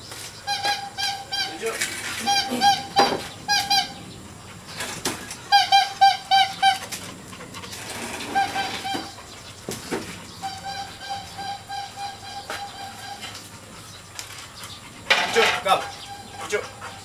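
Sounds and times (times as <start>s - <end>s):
bird calling repeated notes: 0.4s - 4.1s, 5.4s - 7.0s, 8.2s - 9.2s, 10.3s - 13.5s, 15.7s - 16.7s.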